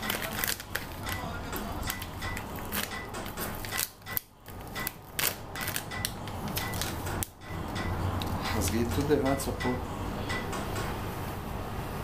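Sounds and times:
packet crinkling and ripping: 0.0s - 7.0s.

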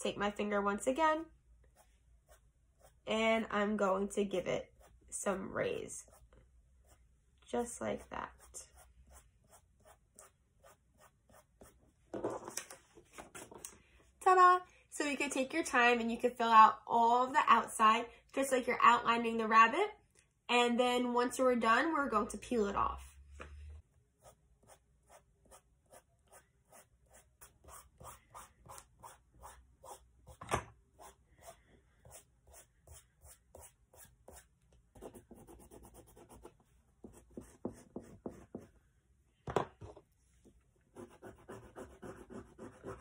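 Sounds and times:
chalk pastel scratching on paper: 8.0s - 11.8s, 24.2s - 30.4s, 31.0s - 38.7s, 41.0s - 43.0s.

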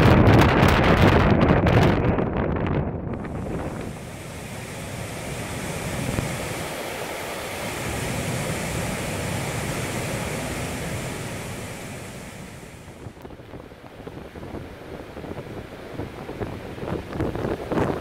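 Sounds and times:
stream rushing over rocks: 3.2s - 13.2s.

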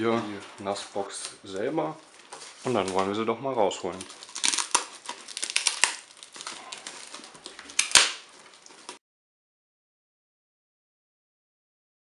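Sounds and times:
plastic wrapping crinkling: 0.0s - 9.0s.

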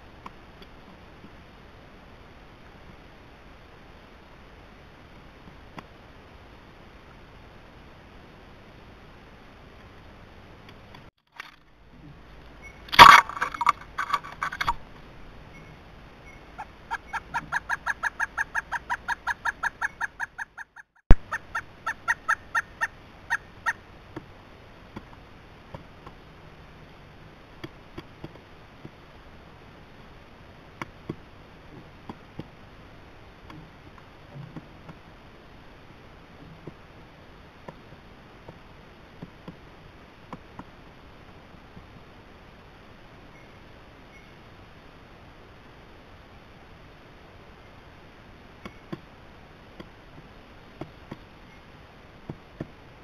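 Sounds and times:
woodpecker calling: 15.5s - 23.8s.

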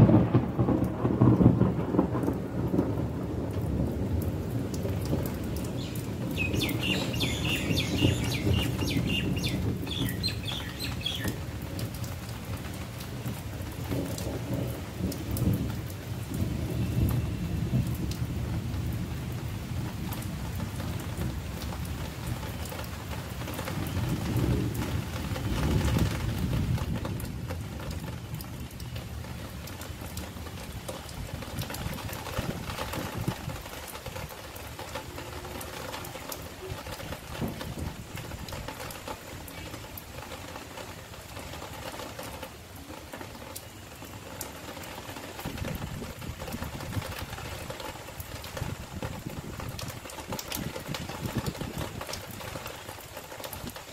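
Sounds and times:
light rain falling: 0.0s - 53.9s
bird chirping: 5.8s - 11.4s.

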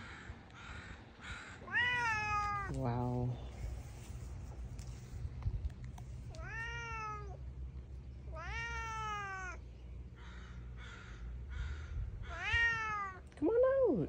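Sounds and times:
cat meowing: 1.7s - 2.8s, 6.3s - 7.4s, 8.3s - 9.6s, 12.3s - 13.2s.

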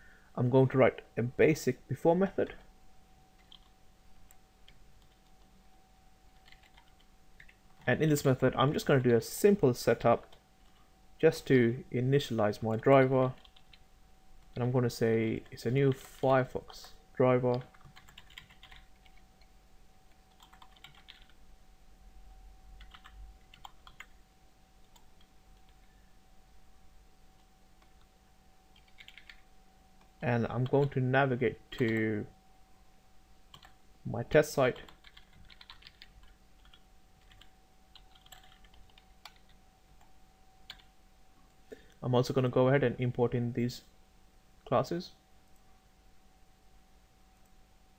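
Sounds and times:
faint typing on keyboard: 3.4s - 5.6s, 6.2s - 9.4s, 10.0s - 10.9s, 12.6s - 21.4s, 22.8s - 24.2s, 24.8s - 26.0s, 27.3s - 28.1s, 28.7s - 31.0s, 31.7s - 32.2s, 33.5s - 33.8s, 34.6s - 42.0s.

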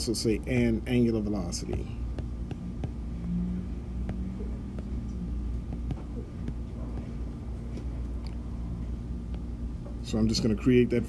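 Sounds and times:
low background hum: 0.0s - 11.0s
taps on touchscreen keyboard: 5.7s - 7.1s.

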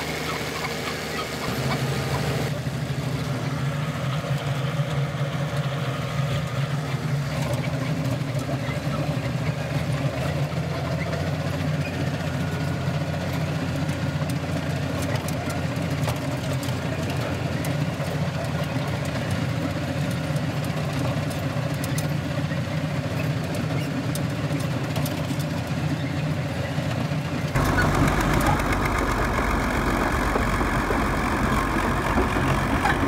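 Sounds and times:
bulldozer engine idling: 0.0s - 33.0s.

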